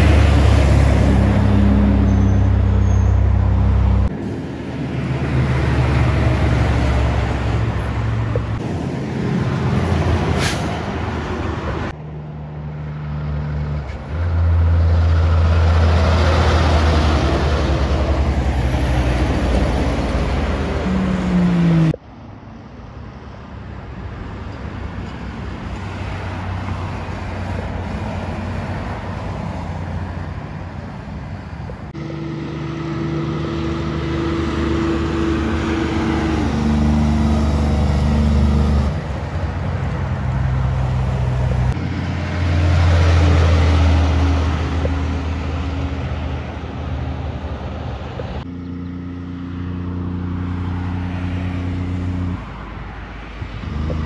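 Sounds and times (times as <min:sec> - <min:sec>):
trucks driving past: 0:00.0 - 0:54.0.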